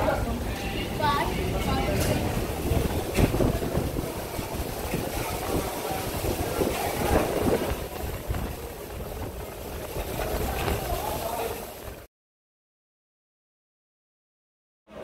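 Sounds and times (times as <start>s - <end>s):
gusting wind with driven rain: 0.0s - 12.1s
wind striking microphone: 1.3s - 12.1s.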